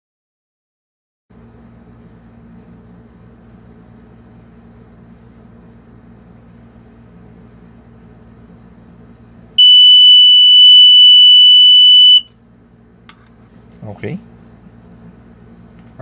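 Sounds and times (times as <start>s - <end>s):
high-pitched buzzer tone: 9.6s - 12.3s.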